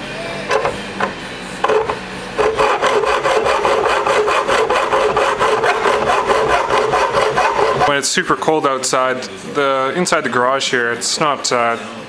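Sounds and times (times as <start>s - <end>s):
hacksaw cutting metal bar: 0.5s - 8.0s.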